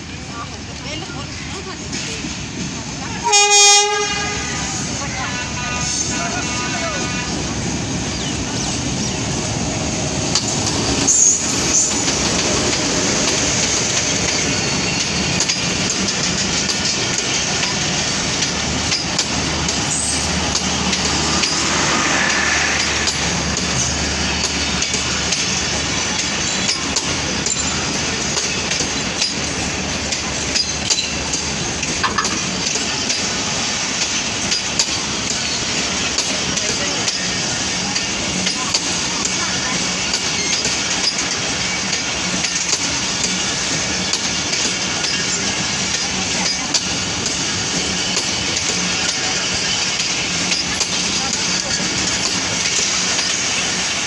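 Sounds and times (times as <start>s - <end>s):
clickety-clack over rail joints: 0.0s - 54.0s
train wheels rumbling: 0.0s - 54.0s.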